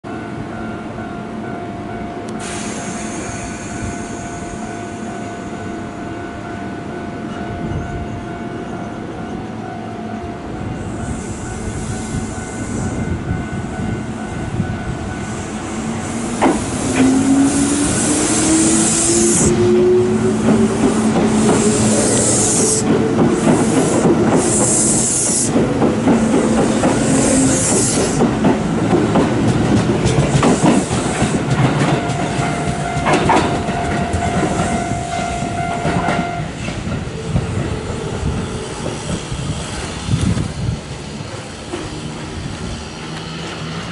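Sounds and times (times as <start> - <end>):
train wheels clattering on rails: 12.0 - 43.9.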